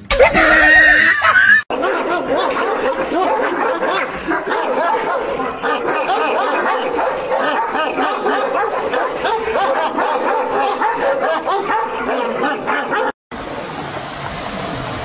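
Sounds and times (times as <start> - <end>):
dogs barking and yipping: 0.1 - 13.2
rushing water: 13.3 - 15.0.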